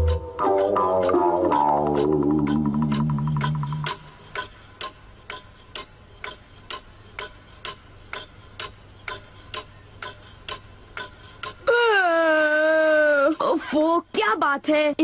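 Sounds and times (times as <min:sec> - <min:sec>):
clock ticking: 0:00.0 - 0:15.0.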